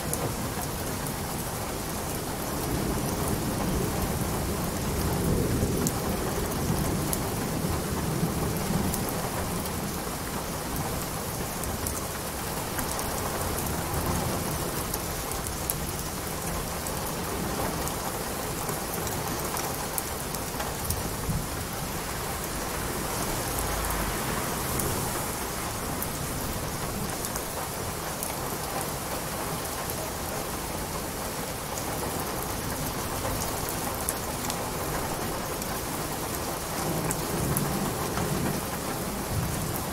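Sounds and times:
steady rain falling: 0.0 - 39.9
low rumble of thunder: 1.8 - 12.0, 12.9 - 29.8.

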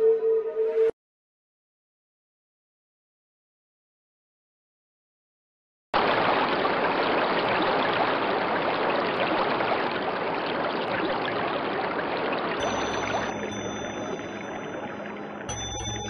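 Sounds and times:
faint steady high tones: 12.6 - 16.0
low hum: 12.6 - 16.0.

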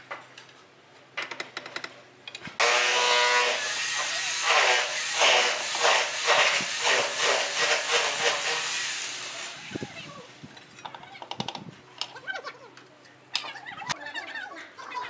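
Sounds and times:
people talking: 9.6 - 10.3, 12.0 - 15.0.

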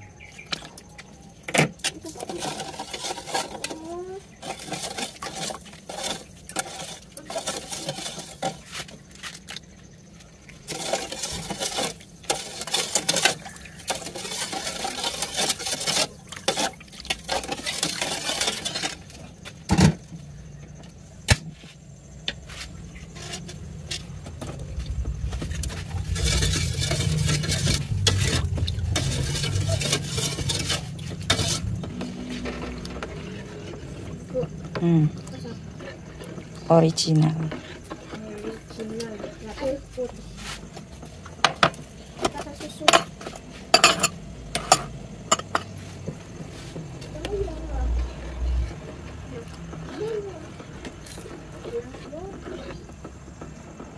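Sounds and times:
ladle scraping steel bowl: 0.4 - 9.8, 10.5 - 19.5, 22.3 - 52.9
low steady rumble: 22.0 - 40.3.

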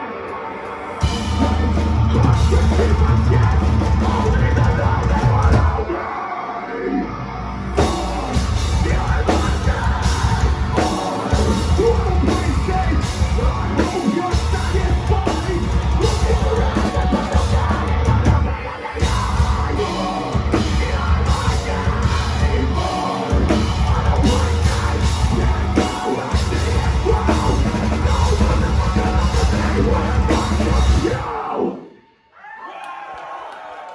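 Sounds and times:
heavy guitars: 0.0 - 32.0
bass guitar: 1.0 - 6.0, 6.7 - 31.6
drum kit: 1.0 - 6.0, 7.8 - 31.6
screamed vocal: 30.9 - 33.9.

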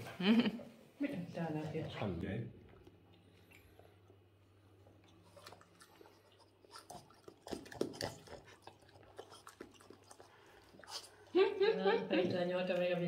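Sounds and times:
dog chewing food: 2.6 - 11.4.

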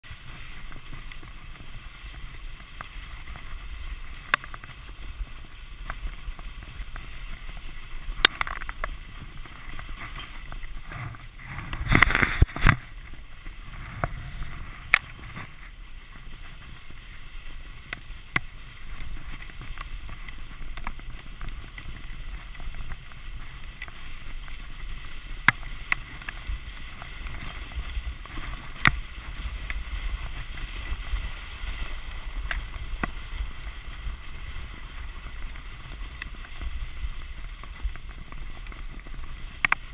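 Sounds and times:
sled clicks and knocks: 0.0 - 39.9
sled rattling jolt: 0.0 - 39.9
wind on microphone: 0.0 - 39.9
sled runners hissing on snow: 0.1 - 39.9.

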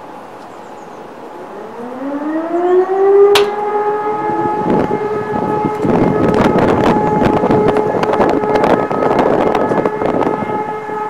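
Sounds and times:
civil defence siren wailing: 1.0 - 11.0
wind noise on microphone: 2.6 - 11.0.

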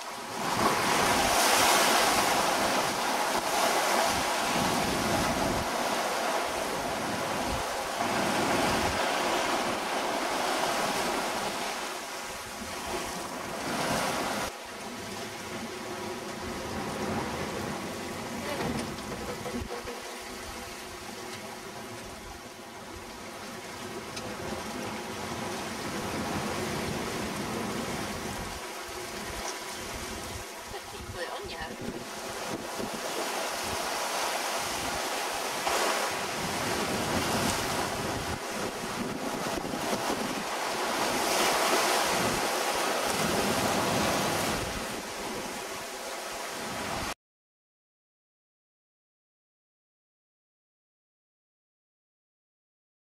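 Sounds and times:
sea water rushing: 0.0 - 47.2
wind: 0.0 - 47.2
wind buffeting microphone: 25.2 - 45.7.

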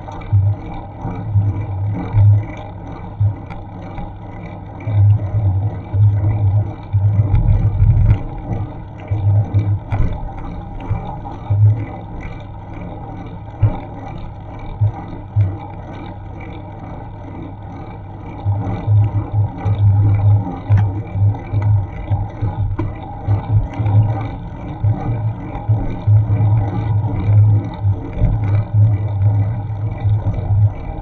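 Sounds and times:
wind buffeting microphone: 7.1 - 11.8.

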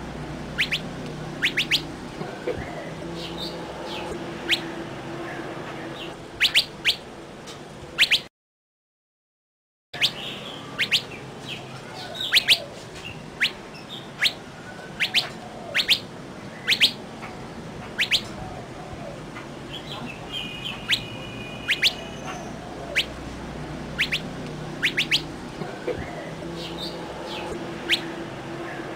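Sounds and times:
songbirds falling whistled calls: 0.6 - 4.7, 6.0 - 7.0, 8.0 - 8.3, 10.0 - 17.0, 17.9 - 18.4, 19.7 - 23.2, 24.0 - 28.1.

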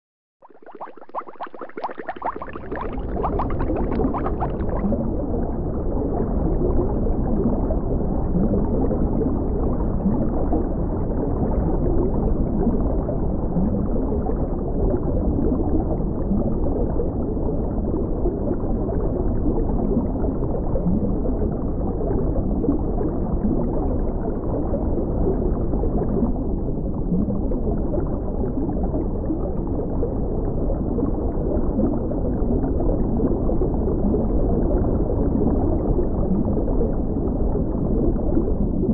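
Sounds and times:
underwater rush of water: 0.4 - 5.4
bubbling and gurgles: 0.4 - 38.9.

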